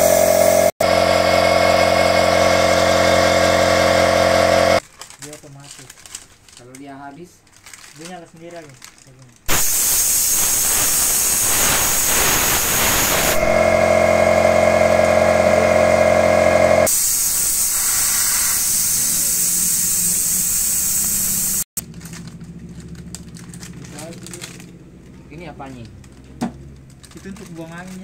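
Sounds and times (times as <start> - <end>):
air compressor hum: 0.0 - 4.8, 9.5 - 22.9
compressed air hissing from blow gun: 9.5 - 13.5, 16.9 - 21.7.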